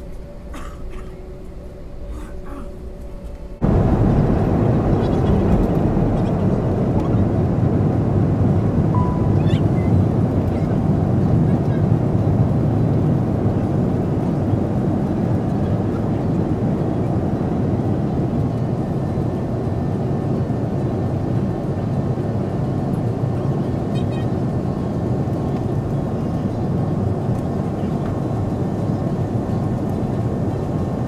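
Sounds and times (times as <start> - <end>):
jet airliner cabin noise: 0.0 - 31.0.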